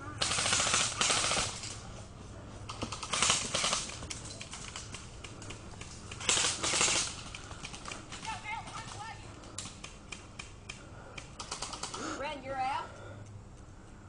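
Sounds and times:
rifle bursts rattling clicks: 0:00.2 - 0:01.8, 0:02.7 - 0:12.0.

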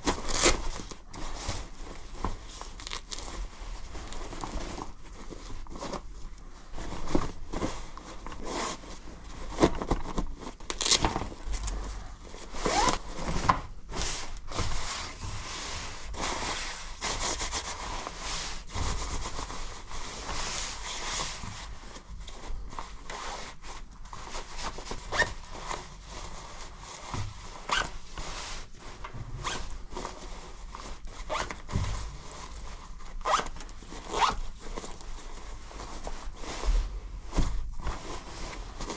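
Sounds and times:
nylon fabric rustling: 0:00.0 - 0:38.9
zipper pulled: 0:12.6 - 0:13.1, 0:29.4 - 0:29.7, 0:33.2 - 0:34.4.

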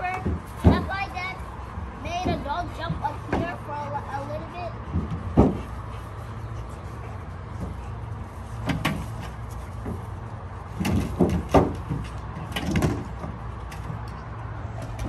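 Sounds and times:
dogs thumping against car body: 0:00.0 - 0:01.1, 0:04.8 - 0:05.9, 0:08.6 - 0:14.2.

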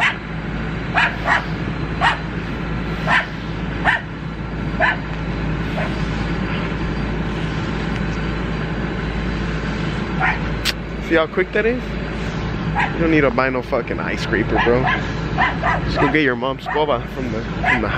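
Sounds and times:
dog barking: 0:00.0 - 0:00.2, 0:00.9 - 0:02.3, 0:03.0 - 0:04.1, 0:04.8 - 0:05.1, 0:05.8 - 0:06.0, 0:10.2 - 0:10.5, 0:12.8 - 0:13.0, 0:14.6 - 0:17.0, 0:17.6 - 0:17.9
steady background noise: 0:00.0 - 0:17.9.

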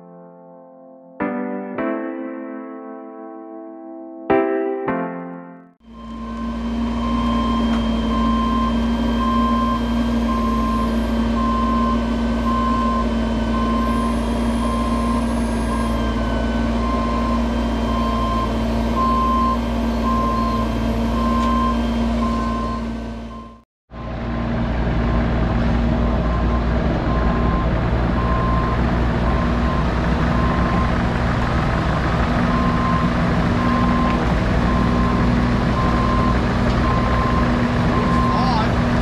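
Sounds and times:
reversing alarm beeping: 0:05.8 - 0:24.4, 0:26.0 - 0:31.1, 0:32.4 - 0:38.8
truck engine running: 0:05.8 - 0:39.0.

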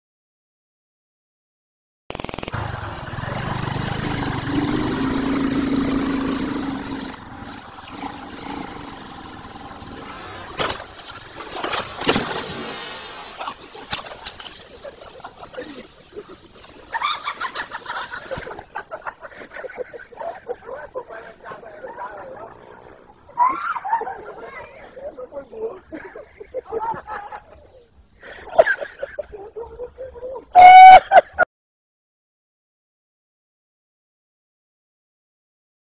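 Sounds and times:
motorcycle engine running: 0:02.1 - 0:11.4
wooden bridge crashing over: 0:10.5 - 0:12.8
loud held call: 0:30.6 - 0:31.2.

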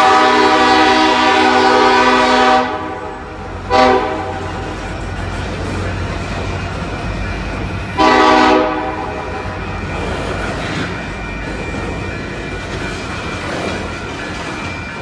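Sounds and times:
train horn blast: 0:00.0 - 0:04.7, 0:08.0 - 0:09.2
freight train rumbling on rails: 0:00.0 - 0:15.0.

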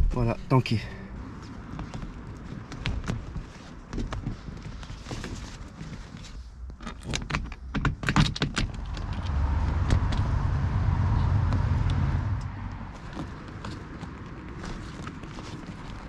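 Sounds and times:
car passing: 0:08.6 - 0:14.5.

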